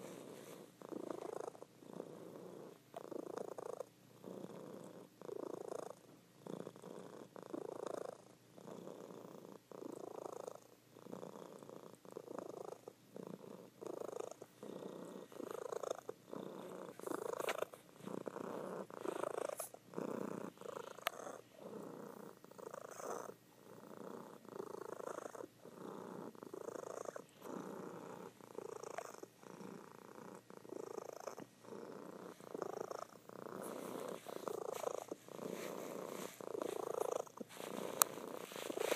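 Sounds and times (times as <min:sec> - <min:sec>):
cat purring: 0:00.0 - 0:38.9.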